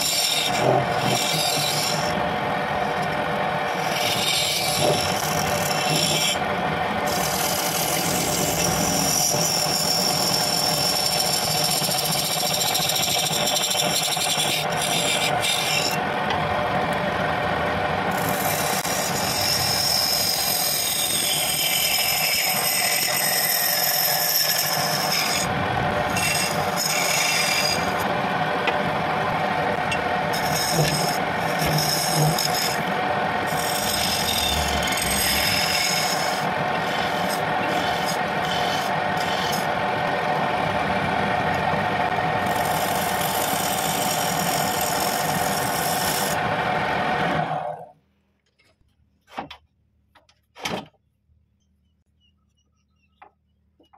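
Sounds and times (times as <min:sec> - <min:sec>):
turning tool scraping wood: 0:00.0 - 0:02.2, 0:02.9 - 0:17.1, 0:18.1 - 0:28.9, 0:29.7 - 0:39.9, 0:42.4 - 0:46.5
lathe motor hum: 0:00.0 - 0:47.9.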